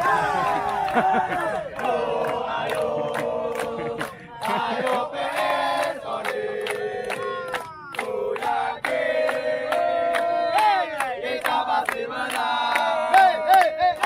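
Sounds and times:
young men chanting: 0.0s - 14.0s
rhythmic hand claps: 0.1s - 14.0s.

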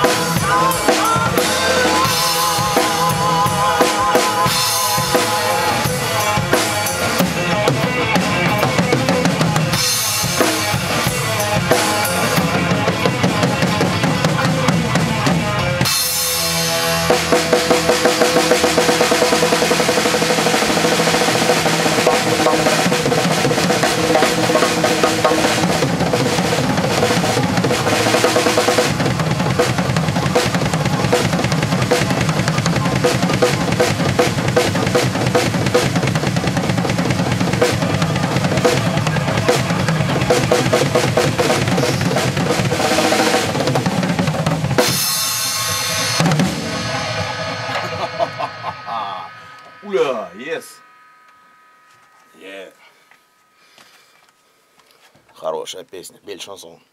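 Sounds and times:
drum kit played hard: 0.0s - 54.1s
recorded rock song: 0.0s - 54.1s
cymbal crash ringing: 15.8s - 54.2s.

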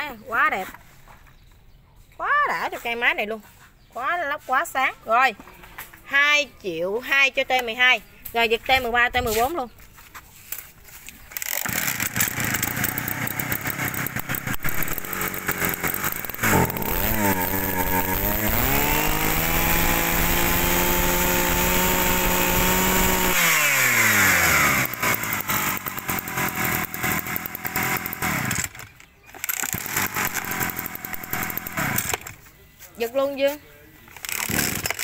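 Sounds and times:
brush-cutter engine revving: 11.3s - 32.4s, 34.1s - 35.0s.

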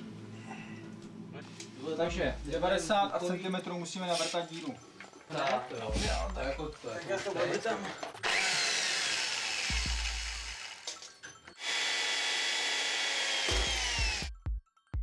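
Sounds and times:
electric drill boring through metal: 8.2s - 14.3s.

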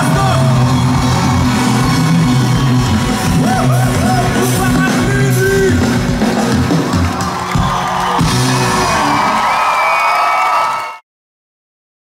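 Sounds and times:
live rock band playing: 0.0s - 9.6s
crowd shouting and whooping: 0.0s - 11.0s.

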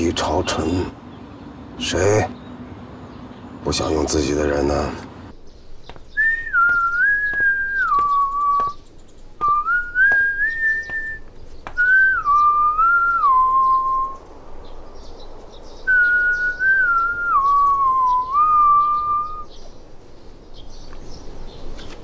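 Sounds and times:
person whistling a tune: 6.2s - 8.8s, 9.4s - 11.2s, 11.8s - 14.2s, 15.9s - 19.4s.

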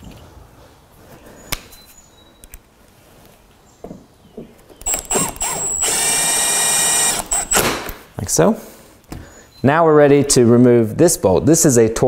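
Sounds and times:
cordless driver motor whine: 4.8s - 7.8s.

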